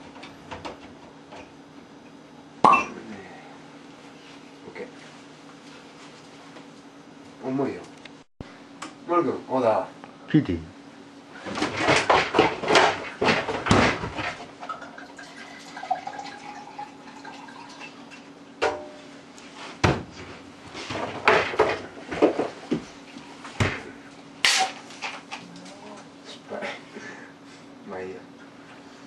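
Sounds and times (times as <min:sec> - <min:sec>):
bottles and glasses clinking: 0:02.6 - 0:03.0
faint steady hum: 0:14.6 - 0:20.7.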